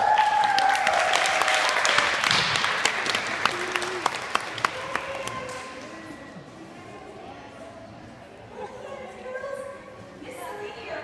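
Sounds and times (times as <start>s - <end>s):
audience applauding: 0.0s - 6.0s
high cheer: 0.0s - 6.2s.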